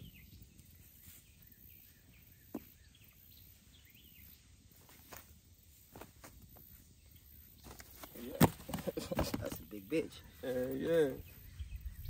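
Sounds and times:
faint bird chirps: 0.0 - 5.9, 9.7 - 12.0.

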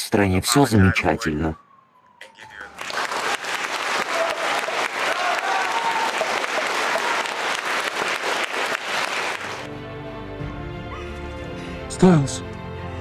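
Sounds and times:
crowd applauding: 2.2 - 9.7.

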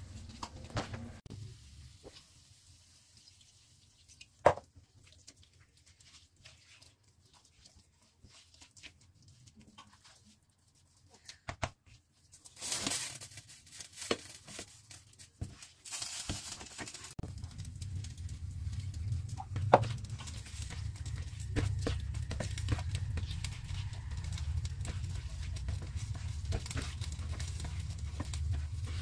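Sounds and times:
hissing sizzle: 1.2 - 4.3, 15.8 - 29.0
plastic spatula scraping pan: 18.7 - 29.0.

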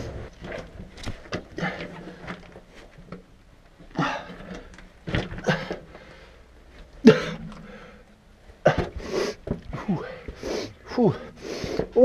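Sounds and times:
person breathing hard: 7.1 - 8.2, 8.8 - 12.0
person grunting: 10.9 - 11.3.

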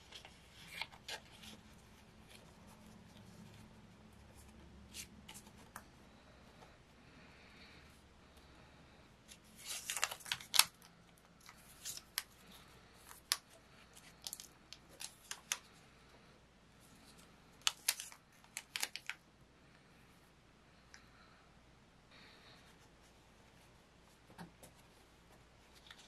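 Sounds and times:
paper crinkling and ticking: 9.3 - 15.7, 17.1 - 19.2.

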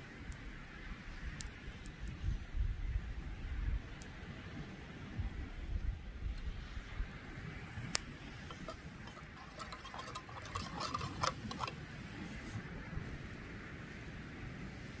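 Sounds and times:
low wind rumble: 0.0 - 15.0
metal pot clicking in embers: 7.9 - 12.0.

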